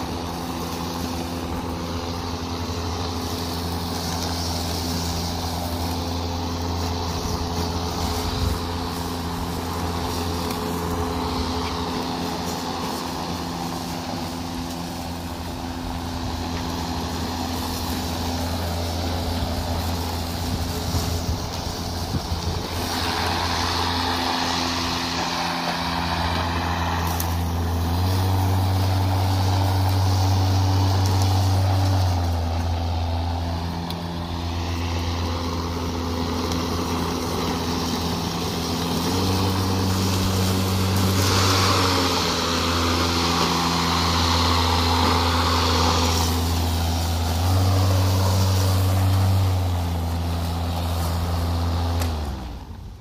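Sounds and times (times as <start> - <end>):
electric lawn mower motor hum: 0.0 - 53.0
hiss of grass being cut: 0.0 - 53.0.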